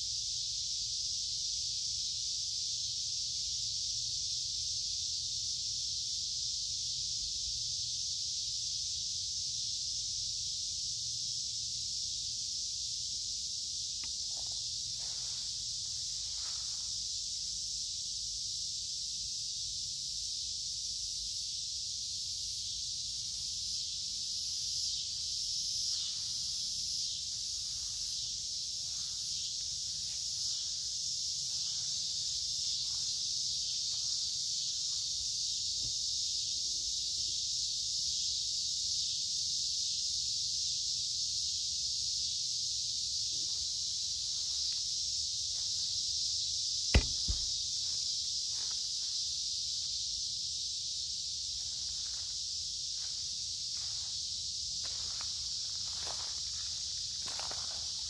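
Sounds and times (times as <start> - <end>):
cicadas buzzing: 0.0 - 58.0
footsteps on gravel: 47.0 - 47.5
sharp knock: 47.0 - 47.5.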